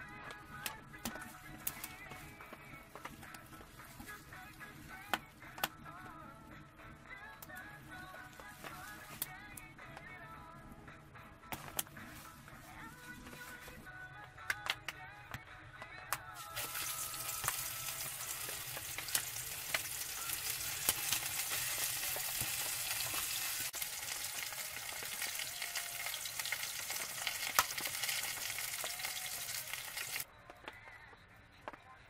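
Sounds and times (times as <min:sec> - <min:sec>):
fish frying in hot oil: 0:16.4 - 0:30.2
oil popping and crackling: 0:16.4 - 0:30.3.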